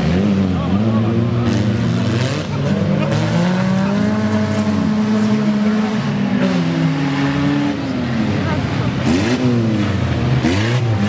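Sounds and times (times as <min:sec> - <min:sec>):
car engines revving: 0:00.0 - 0:11.0.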